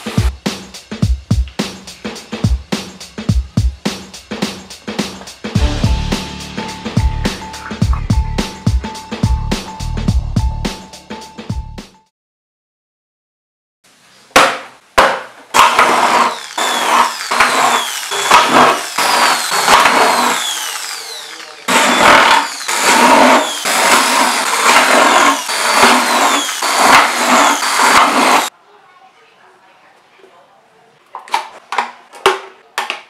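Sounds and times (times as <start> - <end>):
power drill through plastic: 15.5 - 28.5.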